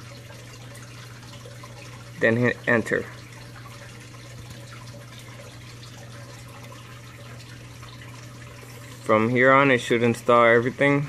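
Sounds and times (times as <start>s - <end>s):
low constant hum: 0.0s - 11.0s.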